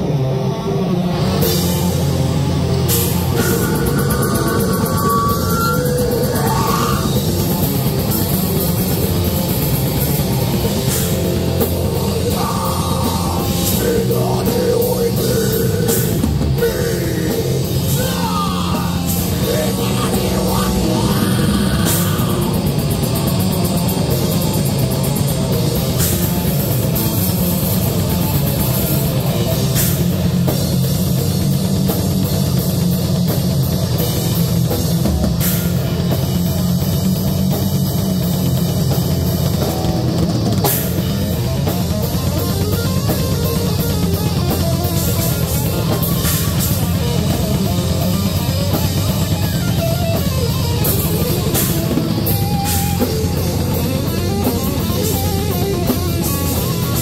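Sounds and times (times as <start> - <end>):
heavy metal band playing live: 0.0 - 57.0
person singing into a microphone: 12.0 - 22.7.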